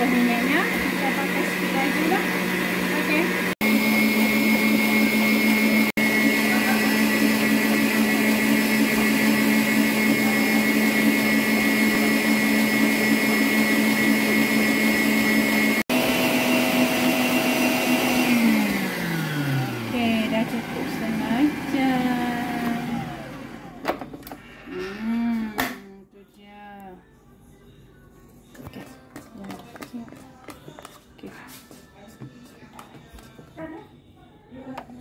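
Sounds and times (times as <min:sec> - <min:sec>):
stand mixer motor whining: 0:00.0 - 0:23.9.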